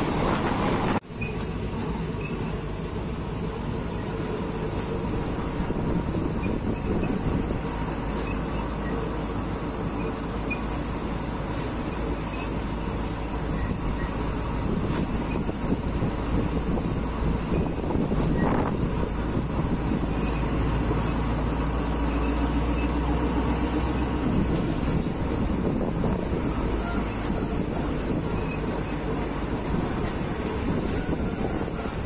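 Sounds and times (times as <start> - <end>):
train rumbling on rails: 0.0 - 32.0.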